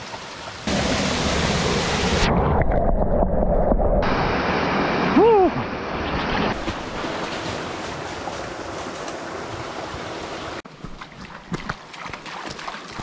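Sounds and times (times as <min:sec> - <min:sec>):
waterfall rushing into pool: 0:00.0 - 0:02.7, 0:04.0 - 0:10.6
man's vocal cry: 0:05.2 - 0:05.6
creek trickling: 0:05.4 - 0:13.0.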